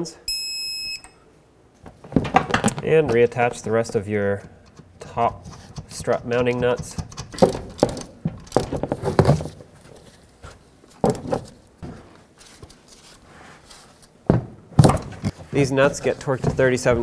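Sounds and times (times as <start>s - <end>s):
metallic clicks of nuts threading: 4.3s - 8.7s.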